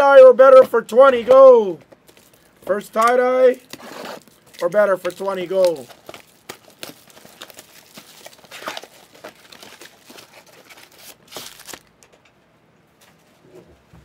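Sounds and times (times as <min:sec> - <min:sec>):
foil wrapper crinkling and tearing: 0:02.0 - 0:12.0.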